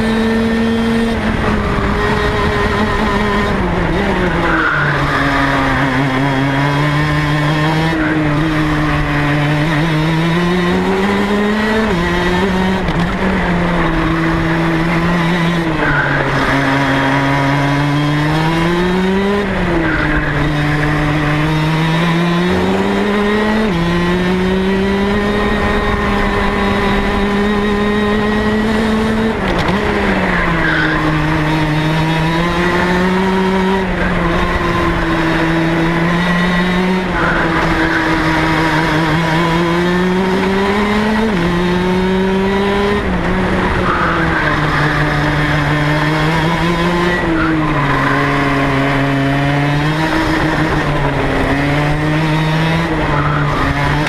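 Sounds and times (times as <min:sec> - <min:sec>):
kart two-stroke engine revving: 0:00.0 - 0:54.0.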